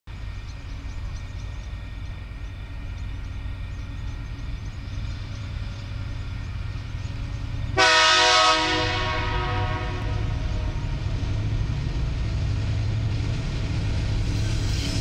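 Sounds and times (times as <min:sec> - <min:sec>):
locomotive engine rumble: 0:00.1 - 0:15.0
train horn: 0:07.7 - 0:11.2.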